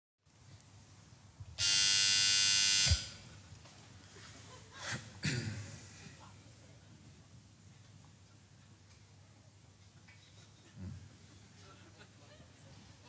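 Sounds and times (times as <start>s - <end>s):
doorbell buzzer: 1.6s - 3.2s.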